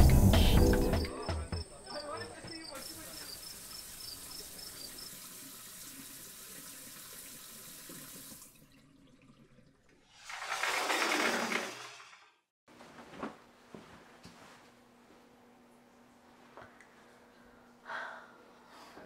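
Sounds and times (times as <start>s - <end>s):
shower water spraying: 2.8s - 8.6s, 10.0s - 12.4s.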